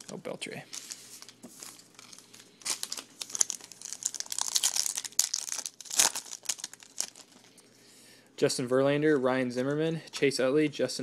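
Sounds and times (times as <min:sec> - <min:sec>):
foil wrapper crinkling and tearing: 0:00.0 - 0:07.5.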